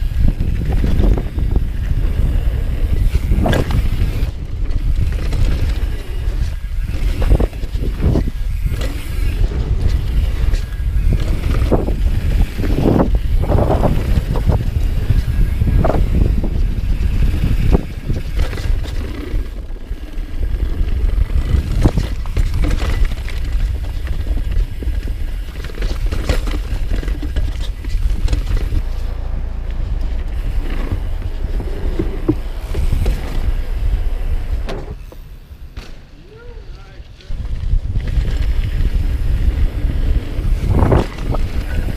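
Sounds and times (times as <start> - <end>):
bike rattling and clattering: 0.0 - 41.9
bike tyres rumbling over ground: 0.0 - 41.9
heavy low rumble: 20.3 - 41.9.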